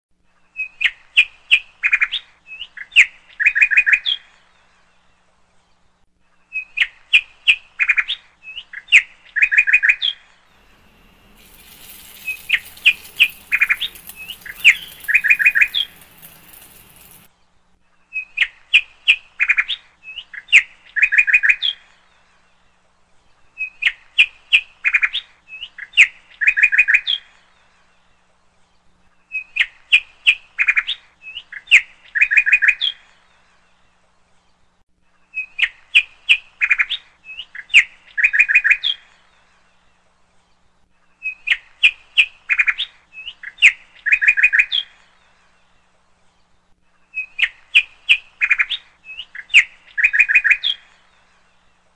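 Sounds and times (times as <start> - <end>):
bird chirping and trilling: 10.6 - 17.3.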